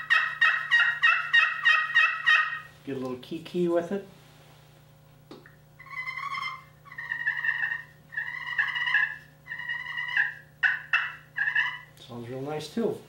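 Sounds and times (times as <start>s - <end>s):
turkey call whistling notes: 0.0s - 2.7s, 5.8s - 11.9s.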